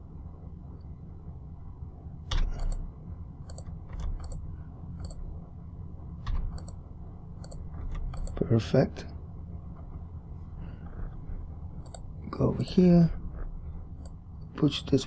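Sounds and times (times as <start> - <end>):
low steady hum: 0.0 - 15.0
keyboard keystrokes and clicks: 2.3 - 4.4, 5.0 - 5.2, 6.2 - 6.8, 7.4 - 8.4, 11.8 - 12.1.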